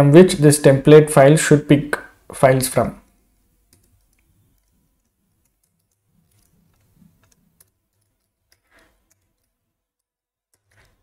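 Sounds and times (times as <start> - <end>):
keyboard typing clicks: 3.7 - 11.0.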